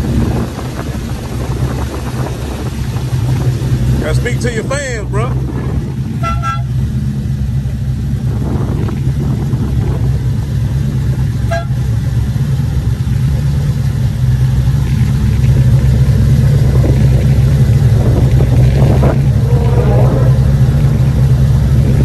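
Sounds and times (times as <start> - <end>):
truck engines rumbling: 0.0 - 22.0
short horn toot: 6.2 - 6.8, 11.5 - 11.8.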